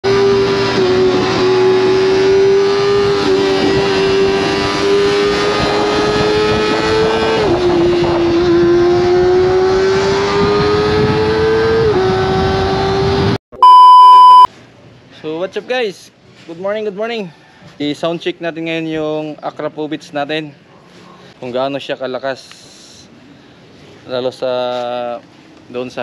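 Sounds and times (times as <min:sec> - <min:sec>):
motorcycle engine revving: 0:00.1 - 0:13.4
loud steady test-tone beep: 0:13.5 - 0:14.5.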